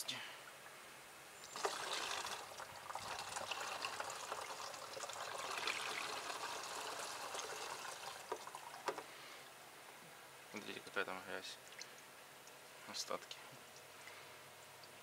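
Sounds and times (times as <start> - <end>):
liquid trickling into funnel: 1.4 - 9.3, 11.6 - 12.6.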